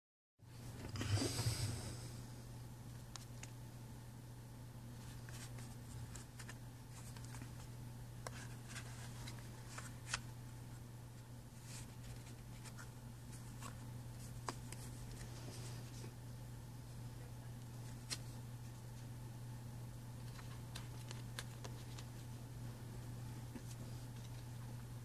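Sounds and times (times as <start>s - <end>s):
steady low hum: 0.4s - 25.0s
playing cards rustling and flicking: 5.0s - 10.3s, 11.6s - 16.1s, 17.8s - 18.4s, 20.2s - 22.3s.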